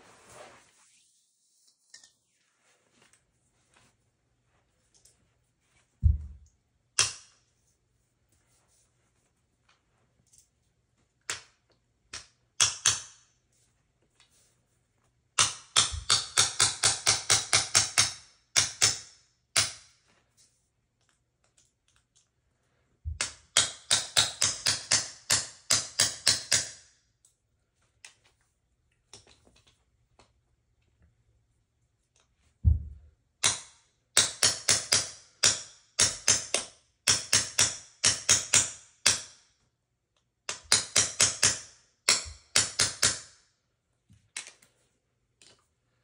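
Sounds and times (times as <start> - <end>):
small hammer tapping metal pin: 12.1 - 13.2, 23.2 - 27.4.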